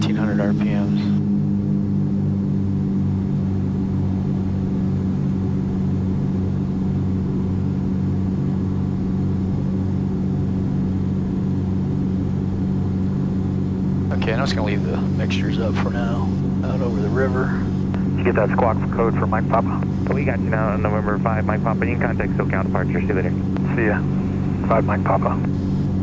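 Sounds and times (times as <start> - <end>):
aircraft engines droning in cabin: 0.0 - 26.0.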